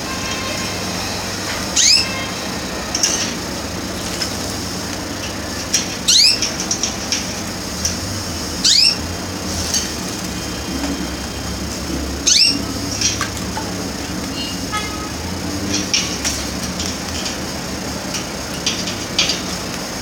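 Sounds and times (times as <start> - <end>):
canary chirping: 0.6 - 2.6, 6.0 - 6.6, 8.6 - 9.1, 10.7 - 13.2.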